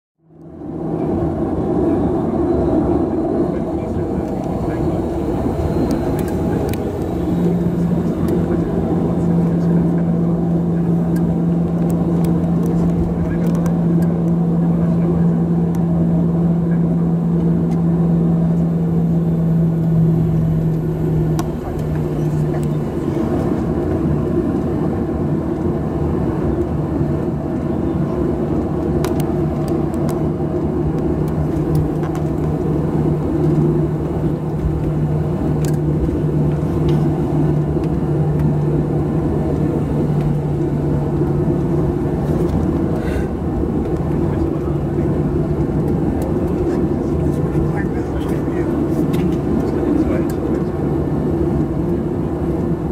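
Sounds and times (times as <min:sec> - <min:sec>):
airplane cabin engine drone: 0:00.2 - 0:52.9.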